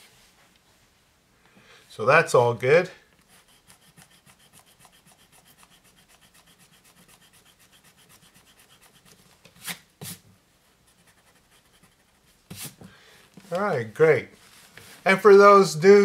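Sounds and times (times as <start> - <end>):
pencil scratching on paper: 3.2 - 10.2, 10.8 - 12.8.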